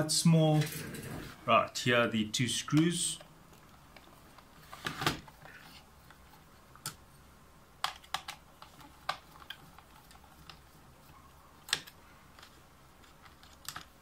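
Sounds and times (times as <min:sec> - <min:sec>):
plastic keyboard clicks and taps: 0:07.8 - 0:10.6.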